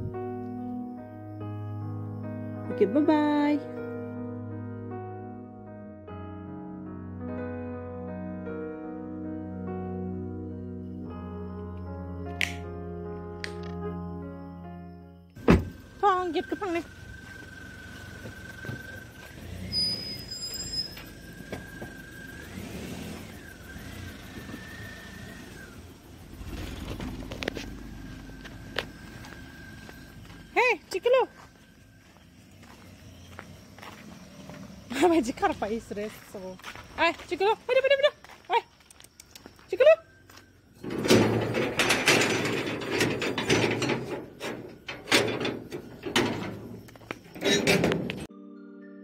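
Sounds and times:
car engine rumbling: 15.4s - 36.6s, 40.1s - 48.3s
metal gate grinding and rattling: 40.8s - 48.3s.

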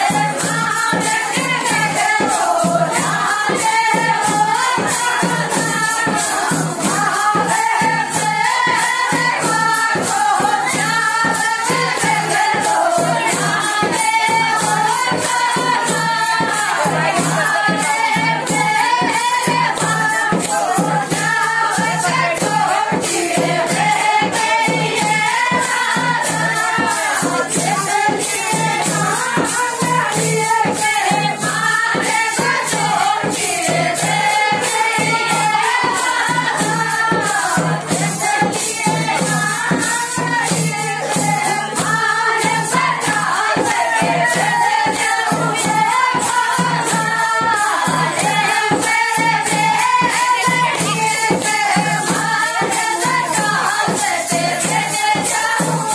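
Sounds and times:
folk singing voices: 0.0s - 55.9s
jingling percussion beat: 0.0s - 55.9s.

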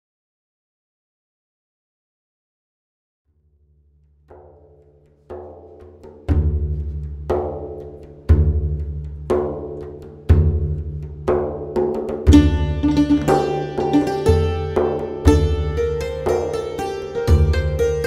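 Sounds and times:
deep drum strikes: 5.5s - 18.0s.

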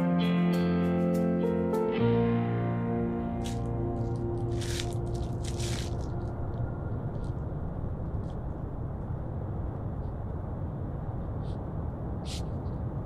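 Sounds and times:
background music: 0.0s - 7.3s
low rumbling outdoor ambience: 1.2s - 13.0s.

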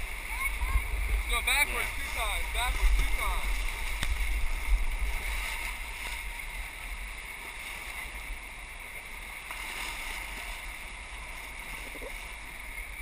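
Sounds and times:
low microphone rumble: 0.0s - 9.4s
river rapids rushing: 0.0s - 13.0s.

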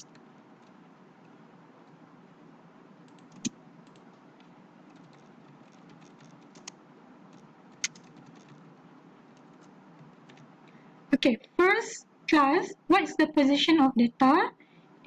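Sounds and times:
ceiling fan hum: 0.0s - 15.0s
keyboard typing: 3.0s - 8.7s, 9.3s - 10.5s.

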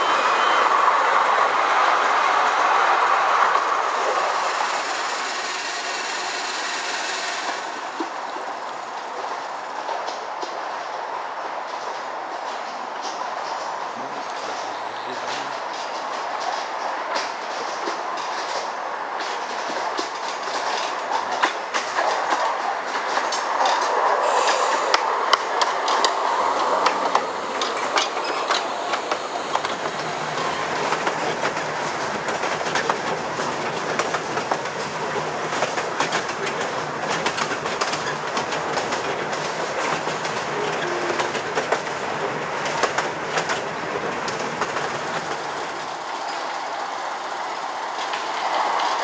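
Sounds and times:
miniature steam train running: 0.0s - 10.7s, 11.7s - 49.0s
wheel clicks over rail joints: 15.4s - 46.6s.

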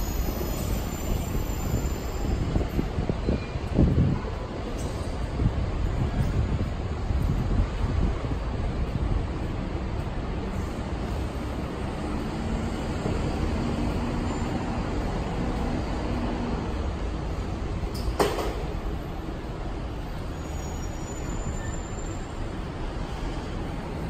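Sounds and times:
street traffic noise: 0.0s - 24.0s
sharp clack: 17.9s - 18.8s.

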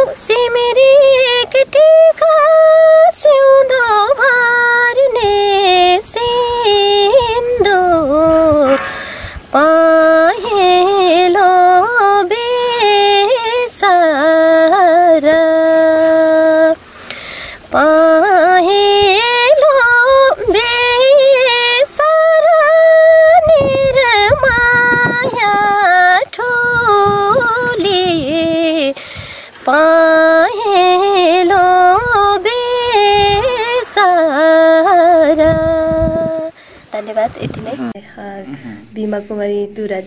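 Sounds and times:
woman singing unaccompanied: 0.0s - 16.9s, 17.5s - 40.0s
singer breathing: 8.7s - 9.5s, 16.8s - 17.7s, 29.0s - 29.6s, 36.5s - 36.9s, 38.5s - 39.0s.

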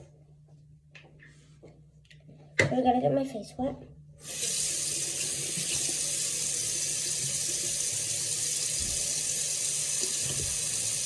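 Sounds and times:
faucet running into sink: 4.2s - 11.0s.

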